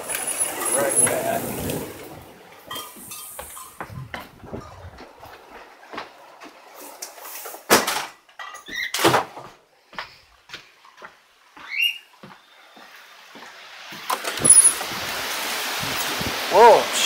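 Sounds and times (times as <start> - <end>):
short rising squeak: 14.3 - 14.8.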